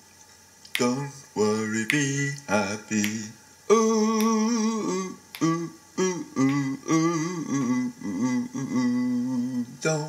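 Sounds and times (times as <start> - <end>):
finger snaps: 0.6 - 1.1, 1.9 - 3.2, 4.2 - 4.4, 5.3 - 5.6, 6.4 - 6.7
man singing wordless vocals: 0.7 - 10.0.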